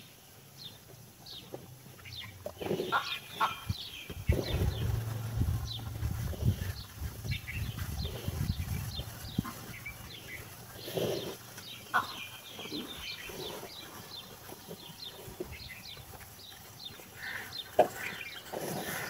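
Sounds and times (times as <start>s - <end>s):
cattle chewing feed: 0.0s - 19.0s
small birds chirping: 0.0s - 19.0s.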